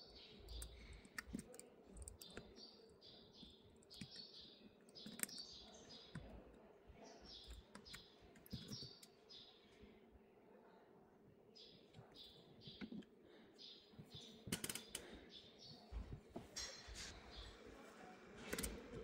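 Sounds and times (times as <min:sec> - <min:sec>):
fingers clicking on phone parts: 0:00.2 - 0:06.6, 0:07.4 - 0:09.2, 0:14.0 - 0:15.2.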